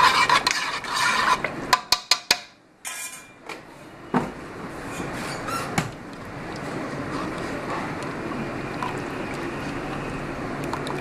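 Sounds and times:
stirring and scraping in pot: 0.0s - 2.1s.

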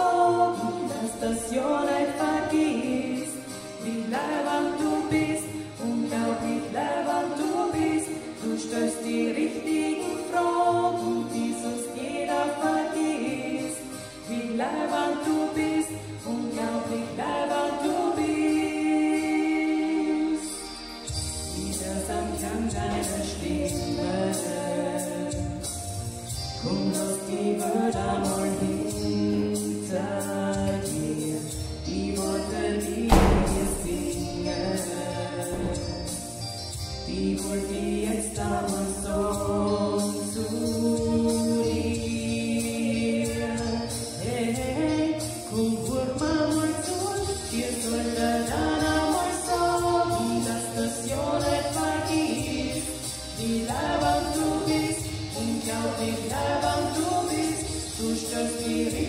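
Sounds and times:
women singing pop song: 0.0s - 59.0s
backing track with bass and beat: 20.4s - 59.0s
loud thump: 33.1s - 34.6s.

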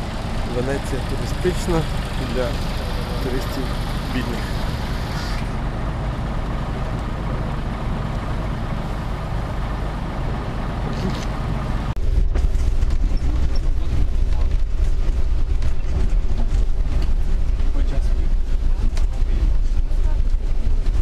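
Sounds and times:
buses passing: 0.0s - 21.0s
moving bus rumble: 0.0s - 21.0s
wet street hiss: 1.4s - 5.6s.

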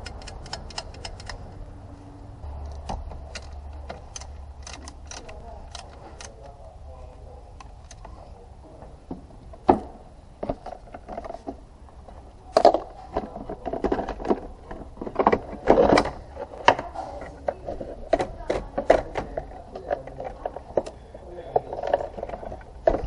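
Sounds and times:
plastic parts knocking and scraping: 9.1s - 23.0s.

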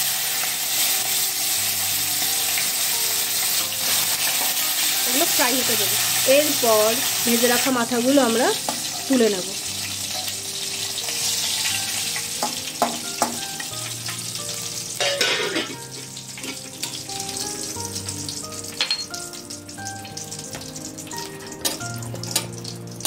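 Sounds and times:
hot oil sizzling: 0.0s - 23.0s
metal spatula clinking on pan: 15.0s - 15.8s, 18.7s - 19.2s.

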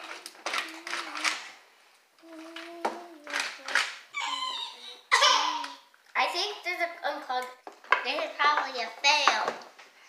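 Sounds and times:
children humming and whining: 2.2s - 5.8s.

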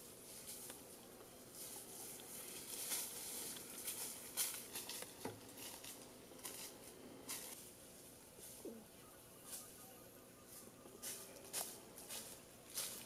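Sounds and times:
brushing past undergrowth: 0.0s - 13.0s
footsteps crunching through dry leaves: 0.1s - 13.0s.

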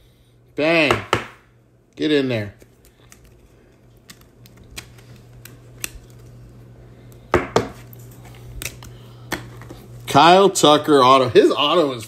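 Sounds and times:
sharp knocks on table: 0.9s - 1.4s, 7.4s - 7.8s.

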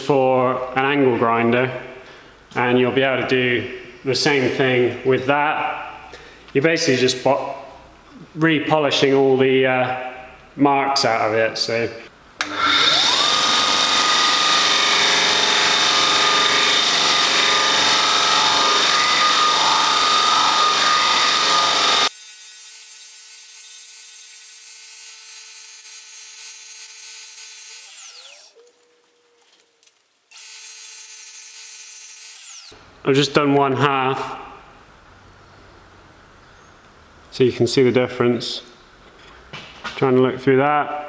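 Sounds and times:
grinder motor whining: 12.4s - 22.1s.

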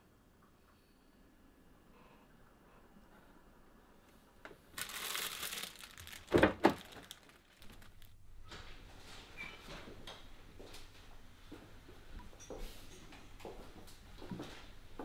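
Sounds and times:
crinkling and rustling: 4.5s - 9.8s.

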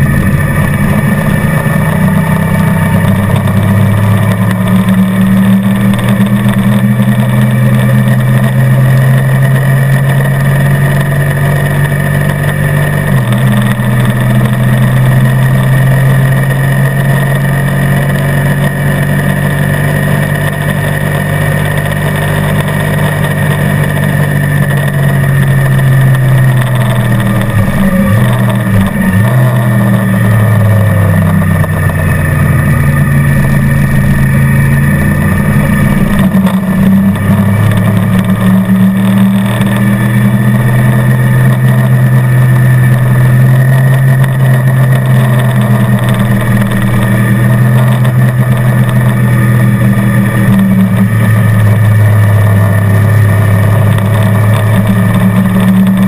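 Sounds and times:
motorcycle engine running hard: 0.0s - 56.0s.

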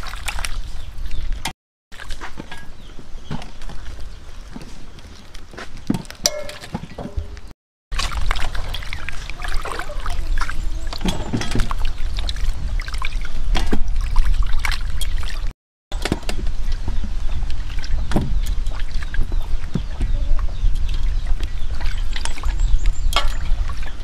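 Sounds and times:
water dripping into metal basin: 6.0s - 7.3s, 20.8s - 24.0s.

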